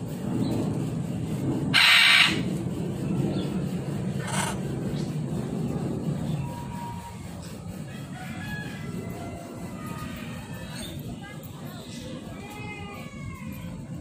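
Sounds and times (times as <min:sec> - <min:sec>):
macaw squawking: 0:01.8 - 0:02.4.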